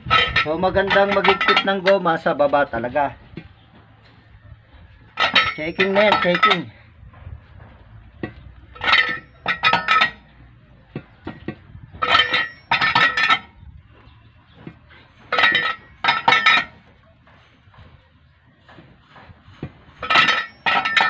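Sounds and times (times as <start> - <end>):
wrench clanking on lug nuts: 0.0 - 2.8, 5.1 - 6.8, 8.2 - 13.6, 14.6 - 16.8, 19.2 - 21.0.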